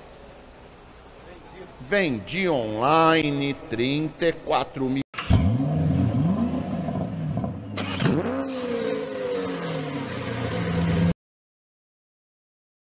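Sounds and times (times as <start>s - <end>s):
car engine revving: 5.2s - 11.1s.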